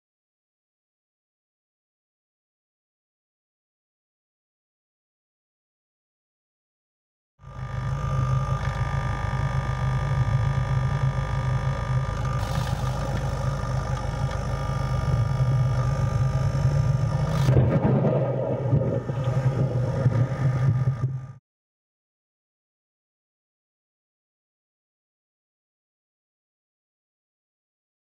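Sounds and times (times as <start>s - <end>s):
vehicle engine running: 7.4s - 21.4s.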